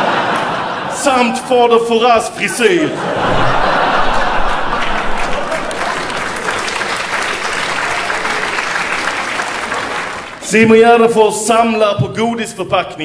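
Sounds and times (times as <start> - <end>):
audience applauding: 3.2 - 10.6.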